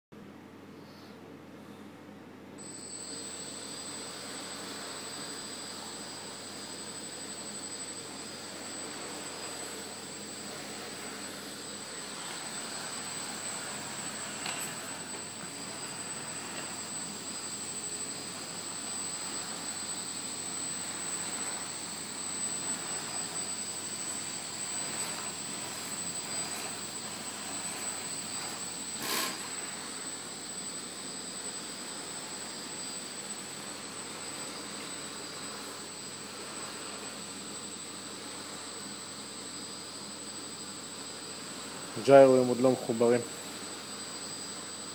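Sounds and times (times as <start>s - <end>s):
small servo whirring: 2.6s - 42.6s
steady hiss: 2.6s - 44.9s.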